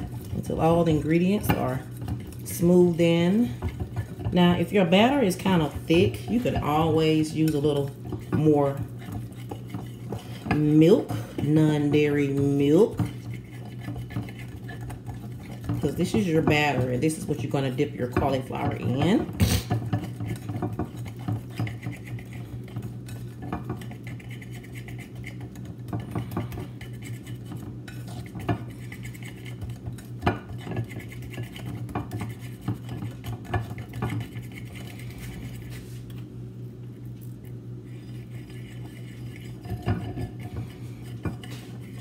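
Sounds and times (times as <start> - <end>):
whisk clinking against bowl: 0.0 - 35.7, 38.2 - 42.0.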